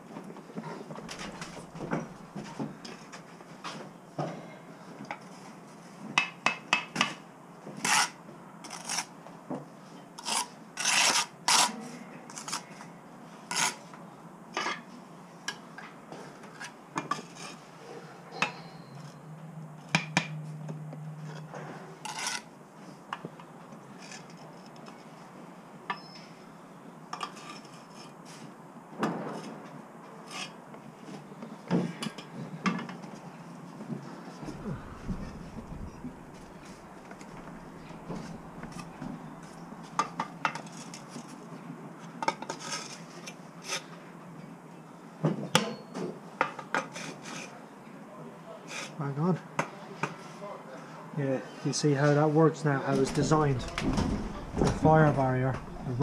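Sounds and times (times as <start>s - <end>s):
tools scraping on brick: 7.8s - 9.1s, 10.2s - 12.9s, 13.5s - 14.0s, 16.3s - 19.2s, 21.3s - 22.5s, 27.2s - 28.4s.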